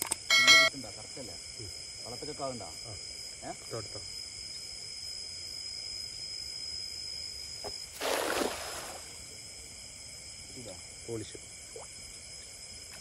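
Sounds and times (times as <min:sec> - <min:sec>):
insects chorus: 0:00.0 - 0:13.0.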